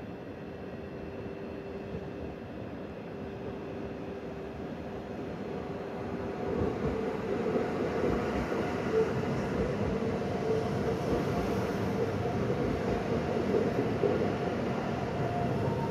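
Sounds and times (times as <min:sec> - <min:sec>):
train wheels rolling on rails: 0:05.6 - 0:15.9.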